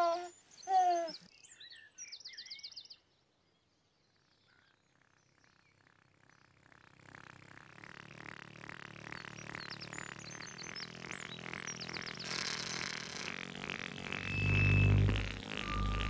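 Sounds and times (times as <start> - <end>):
baby vocalizing: 0.0 - 1.2
rapid high trill: 7.7 - 16.0.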